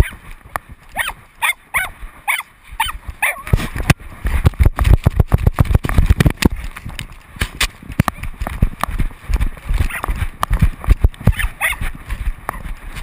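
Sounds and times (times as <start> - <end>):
dog yelping: 0.0 - 0.2, 1.0 - 3.6, 9.9 - 10.1, 11.3 - 11.9
thumps and knocks of running: 2.8 - 13.0.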